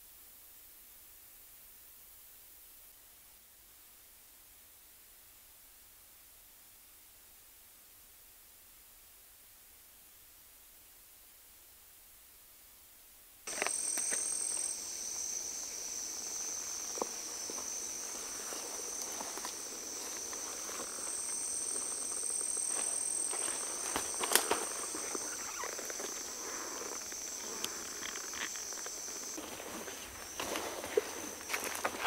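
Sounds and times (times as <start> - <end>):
insects droning: 13.4 - 32.0.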